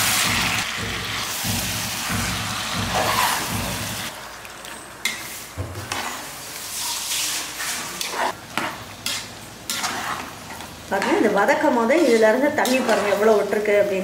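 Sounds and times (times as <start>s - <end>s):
meat sizzling in oil: 0.0s - 14.0s.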